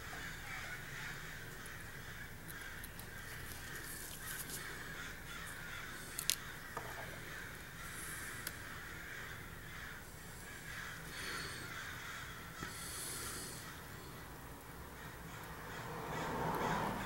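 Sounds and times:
steady background hiss: 0.0 - 17.0
tweezers clicking on watch parts: 6.2 - 6.4.

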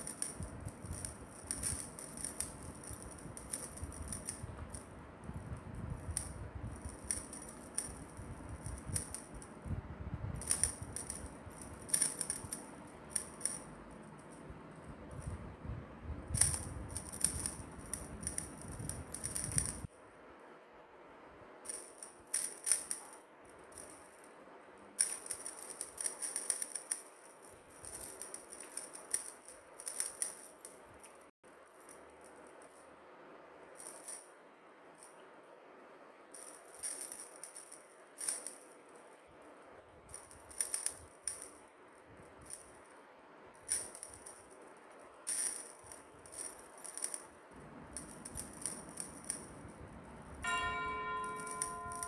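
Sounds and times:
cat toy rattling: 0.0 - 15.5, 16.2 - 19.9, 25.0 - 30.8, 43.6 - 52.0.

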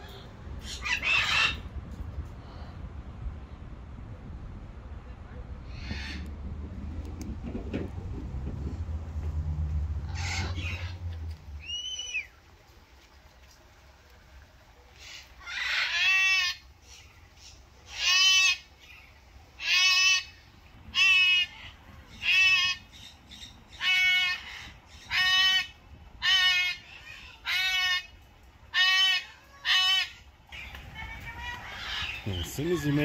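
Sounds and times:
parrot calling: 0.0 - 1.7, 10.1 - 12.4, 15.0 - 33.0.

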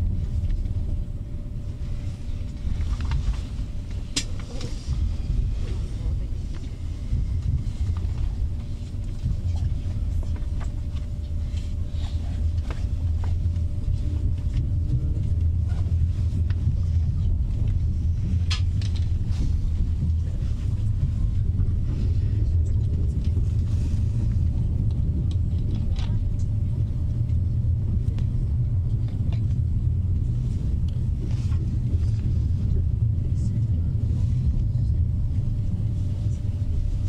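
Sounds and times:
train cabin low rumble: 0.0 - 37.0.

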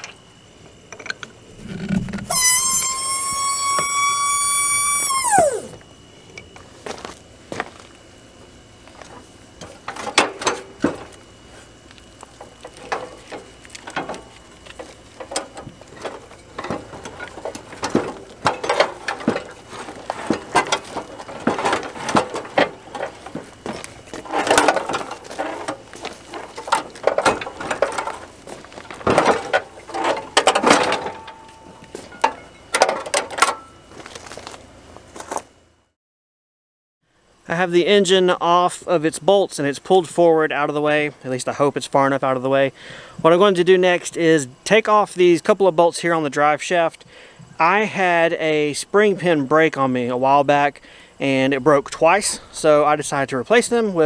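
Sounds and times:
hand tools clanking on steel: 12.7 - 28.3.

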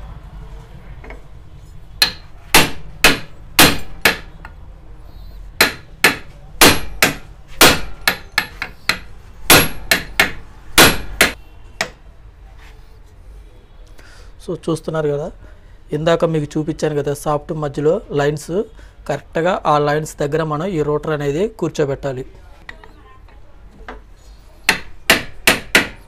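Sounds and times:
hammer striking metal pipe: 2.0 - 4.3, 5.6 - 12.0.

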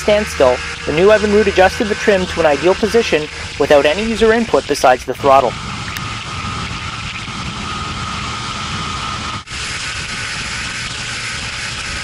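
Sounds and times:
boat engine drone: 0.0 - 12.0.

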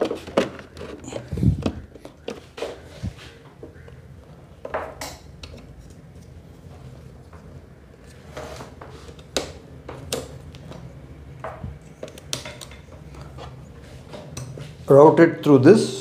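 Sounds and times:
cable being handled: 0.0 - 4.0.

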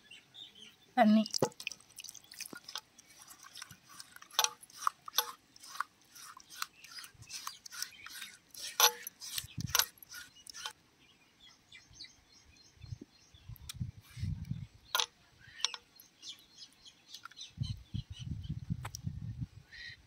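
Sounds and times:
hand squelching wet paste: 1.2 - 10.7.

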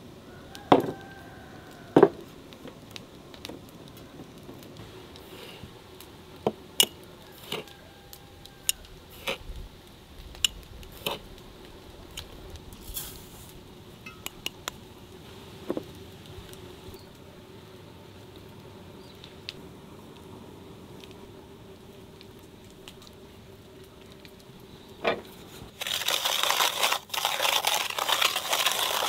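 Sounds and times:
dishes and utensils clinking: 14.0 - 14.4.

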